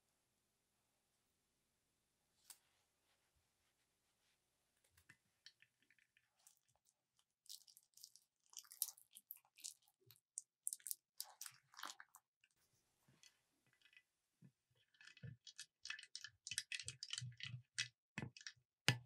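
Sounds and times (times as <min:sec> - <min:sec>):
filling squishing: 0:05.5 - 0:12.3, 0:14.8 - 0:18.6.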